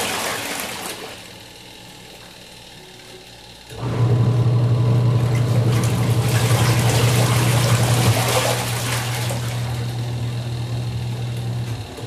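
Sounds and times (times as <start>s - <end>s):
water splashing in wash tub: 0.0s - 1.4s, 5.0s - 10.5s
washing machine motor humming: 0.0s - 12.0s.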